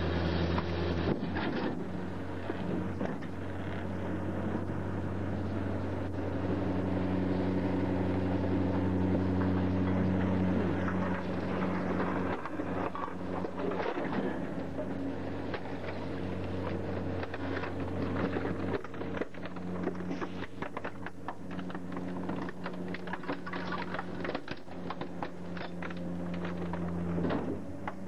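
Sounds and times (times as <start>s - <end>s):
garbage truck engine and hydraulics drone: 0.0s - 28.0s
crunching and cracking snaps: 15.4s - 28.0s.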